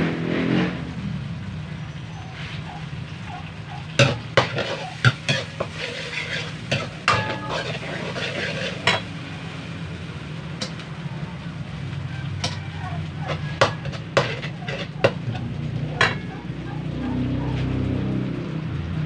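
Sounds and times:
faint frying sizzle: 0.8s - 19.0s
metal ladle scraping wok: 2.0s - 16.6s.

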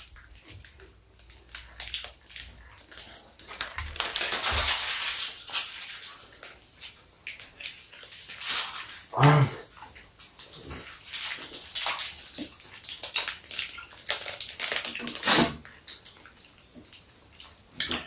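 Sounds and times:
plastic wrapper crinkling: 0.0s - 9.1s, 11.0s - 15.3s
person humming: 9.2s - 9.6s.

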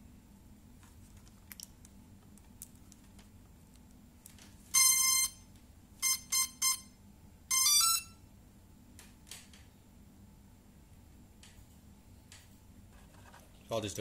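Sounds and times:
electronic beeps: 7.5s - 8.2s.

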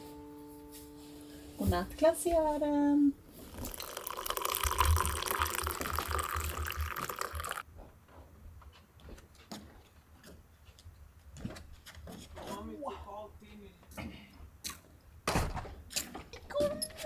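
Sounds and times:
running water: 3.4s - 7.6s.

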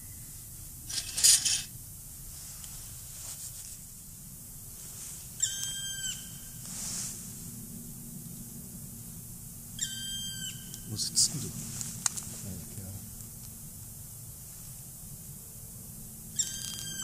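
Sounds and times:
small bird whistled call: 5.4s - 6.6s, 9.8s - 10.9s, 16.3s - 17.0s.

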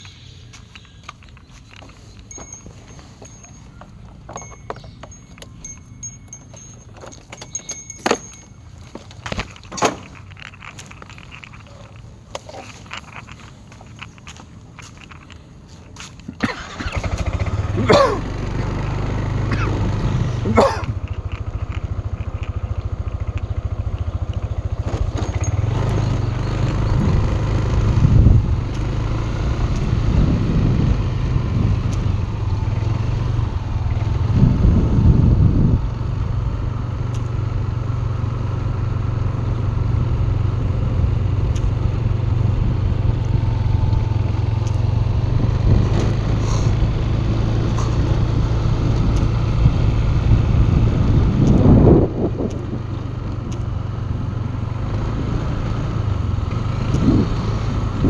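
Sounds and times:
small motorcycle engine running: 16.5s - 58.0s.

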